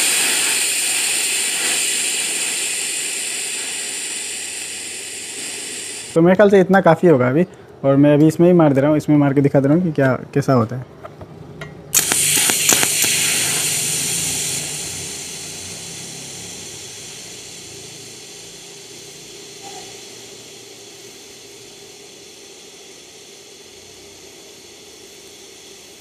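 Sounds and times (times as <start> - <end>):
welding arc crackles: 0.0 - 6.2, 12.0 - 19.1
welding arc hissing: 0.0 - 6.2, 11.9 - 26.0.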